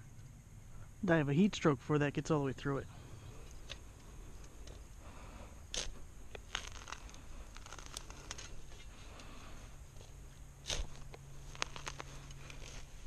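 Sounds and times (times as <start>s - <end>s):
shovel cutting into turf: 10.6s - 12.9s.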